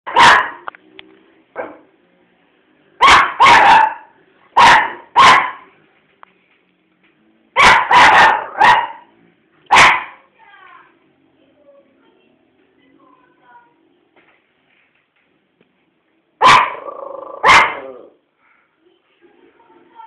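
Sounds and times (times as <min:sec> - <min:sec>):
dog barking: 0:00.1 - 0:00.7, 0:01.6 - 0:01.9, 0:03.0 - 0:05.7, 0:07.6 - 0:09.1, 0:09.7 - 0:10.3, 0:16.4 - 0:18.1.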